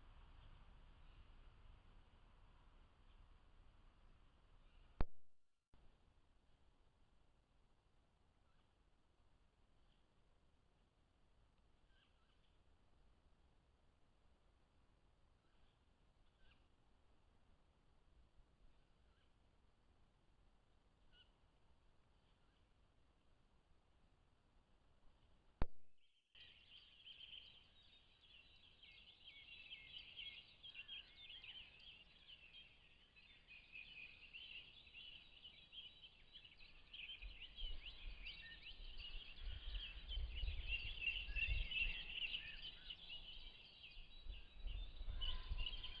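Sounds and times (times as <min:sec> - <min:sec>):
chorus of birds singing: 0:26.4 - 0:46.0.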